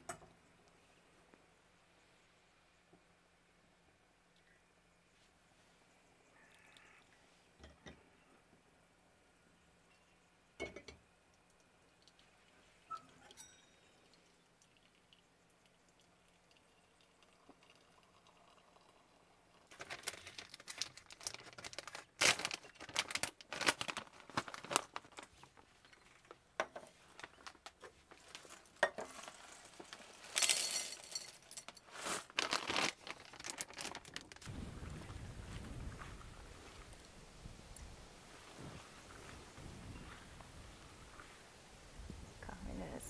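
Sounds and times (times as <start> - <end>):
dishes clinking: 10.6 - 11.0, 13.2 - 14.0
packaging crinkling: 19.7 - 26.4, 27.0 - 34.5.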